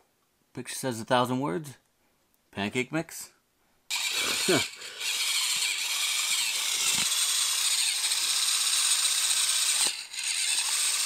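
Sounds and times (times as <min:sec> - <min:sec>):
small mixer motor whirring: 0:03.9 - 0:11.0.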